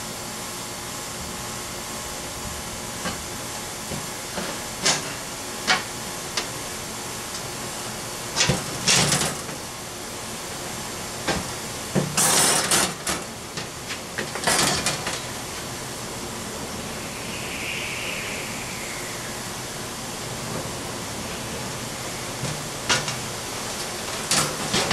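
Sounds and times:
steady hiss: 14.9s - 24.9s.

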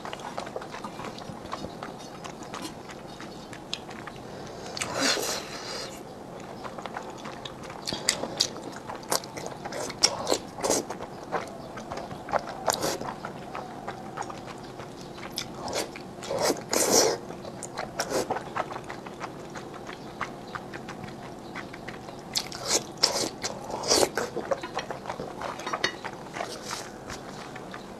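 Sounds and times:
wet chewing: 0.0s - 27.9s
noodle slurping: 15.2s - 17.2s.

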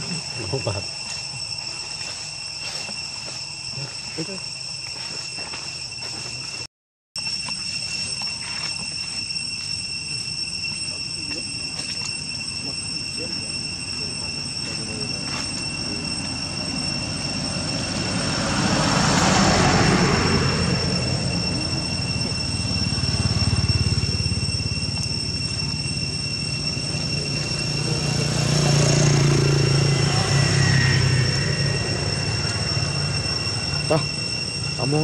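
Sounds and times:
high-pitched insect drone: 0.0s - 35.0s
low rumble: 8.5s - 35.0s.

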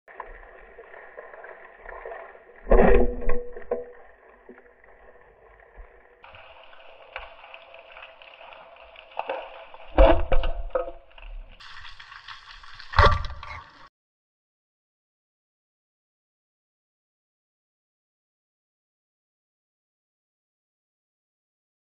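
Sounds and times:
muffled underwater hiss: 4.0s - 10.9s.

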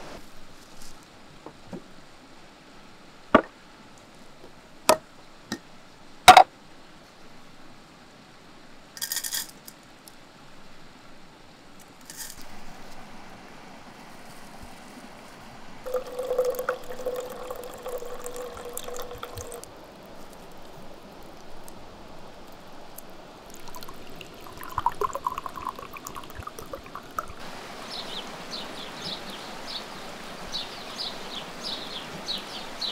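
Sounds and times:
liquid pouring into glass: 15.8s - 21.5s, 23.4s - 27.4s
bird chirping: 27.8s - 32.9s.

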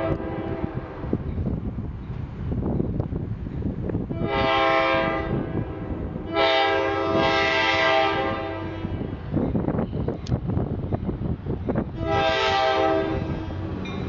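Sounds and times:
locomotive air horn blasts: 0.0s - 1.0s, 4.1s - 9.0s, 11.9s - 13.9s.

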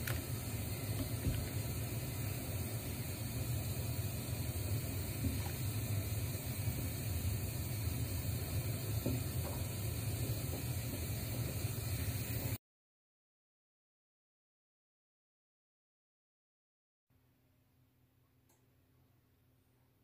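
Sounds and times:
saucepan simmering on gas stove: 0.0s - 12.6s.

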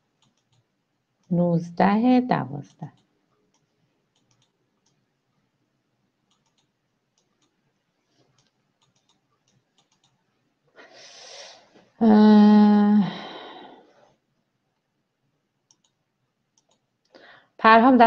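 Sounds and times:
faint clicks: 0.2s - 1.3s, 2.9s - 5.0s, 6.3s - 7.6s, 8.2s - 10.2s, 15.6s - 17.2s
breath: 10.8s - 11.8s, 13.1s - 14.1s, 17.1s - 17.6s.

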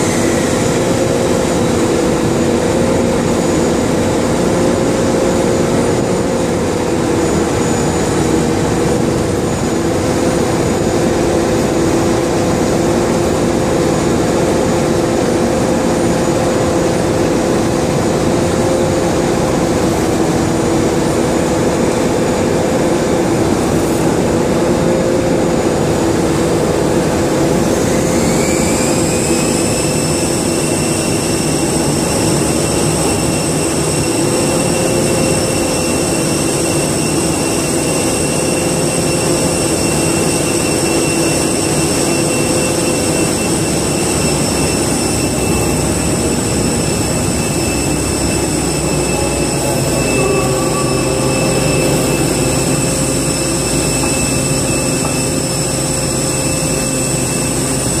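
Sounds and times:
jet engines idling whine: 0.0s - 58.0s
tug engine rumble: 43.2s - 58.0s.

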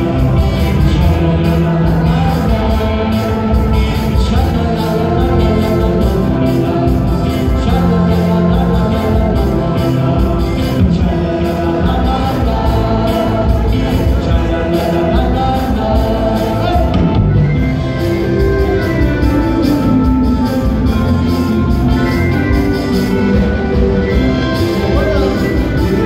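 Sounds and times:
electric guitar: 0.0s - 26.0s
man singing: 0.0s - 26.0s.

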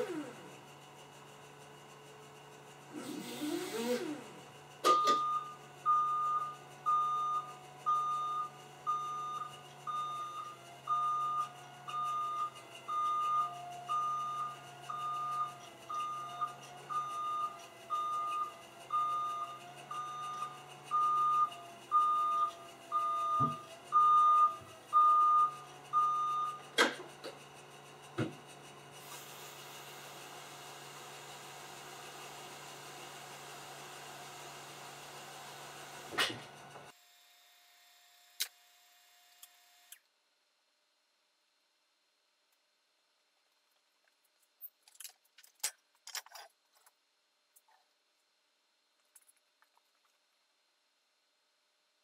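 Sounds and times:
forklift warning alarm beeping: 4.9s - 26.8s.

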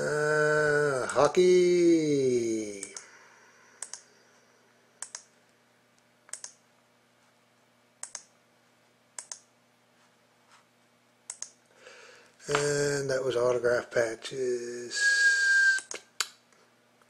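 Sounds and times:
faint steady hum: 0.0s - 17.0s
computer mouse clicks: 3.8s - 4.1s, 5.0s - 5.3s, 6.3s - 6.6s, 8.0s - 8.3s, 9.2s - 9.5s, 11.3s - 11.6s.

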